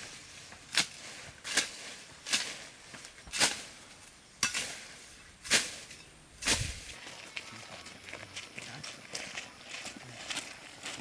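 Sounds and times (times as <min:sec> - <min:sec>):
tool chopping into weeds: 0:00.7 - 0:02.6, 0:03.3 - 0:03.7, 0:05.4 - 0:06.9.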